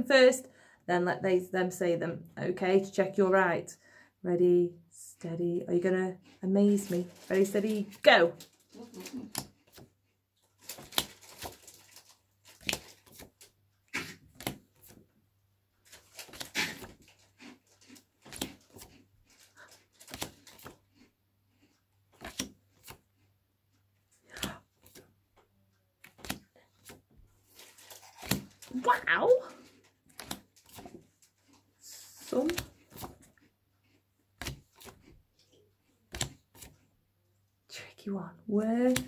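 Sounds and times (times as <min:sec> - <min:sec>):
paper cards sliding and rustling: 0:10.6 - 0:15.0, 0:15.9 - 0:17.3, 0:18.2 - 0:20.8, 0:22.2 - 0:23.0, 0:24.3 - 0:25.1, 0:26.0 - 0:28.8, 0:29.6 - 0:31.1, 0:31.9 - 0:33.2, 0:34.4 - 0:35.1, 0:36.1 - 0:36.8.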